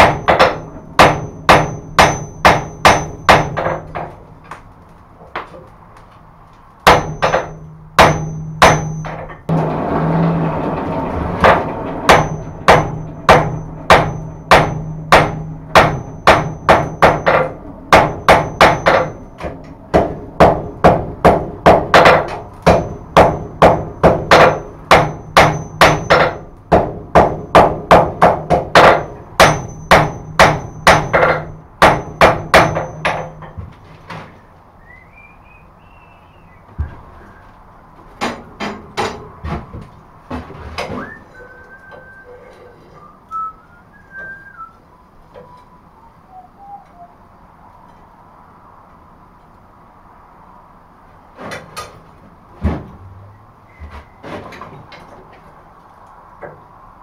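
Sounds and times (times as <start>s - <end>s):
anvil ringing: 0.0s - 3.9s, 6.9s - 9.6s, 12.0s - 19.4s, 24.3s - 26.5s, 28.9s - 33.5s
hammer striking hot metal: 0.0s - 4.2s, 6.8s - 9.7s, 11.4s - 33.5s.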